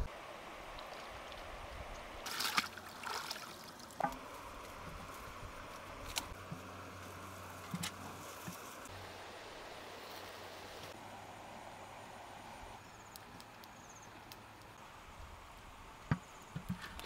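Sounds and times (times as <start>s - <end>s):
flowing river water: 0.0s - 6.9s
water splashing: 2.2s - 5.0s.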